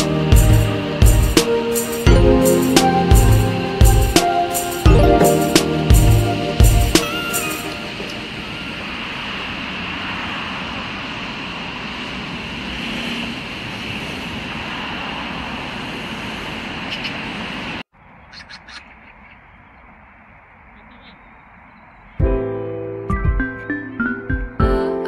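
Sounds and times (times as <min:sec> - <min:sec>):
outdoor ambient noise: 0:00.0 - 0:24.5
bird chirps: 0:18.0 - 0:22.2.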